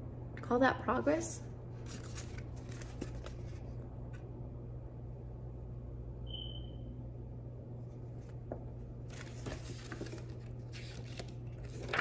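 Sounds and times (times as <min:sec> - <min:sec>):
steady low hum: 0:00.0 - 0:12.0
paper pages rustling: 0:01.8 - 0:03.8, 0:08.1 - 0:12.0.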